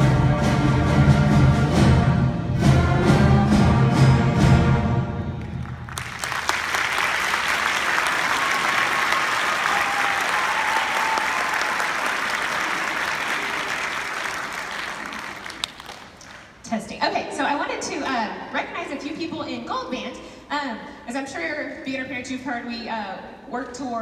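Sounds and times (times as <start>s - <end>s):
audience applause: 5.4s - 16.6s.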